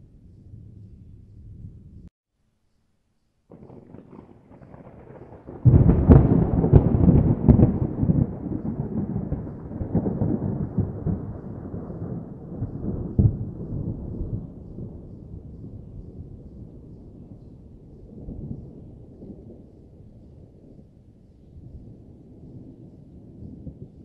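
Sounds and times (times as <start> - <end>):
thunder clap with cracks: 3.5 - 19.7
thunder rumble: 3.5 - 24.0.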